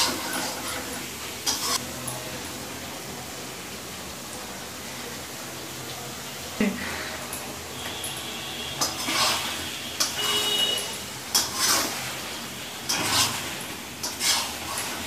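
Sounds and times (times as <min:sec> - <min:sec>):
metal spatula scraping a pan: 0:00.0 - 0:01.8, 0:08.8 - 0:15.0.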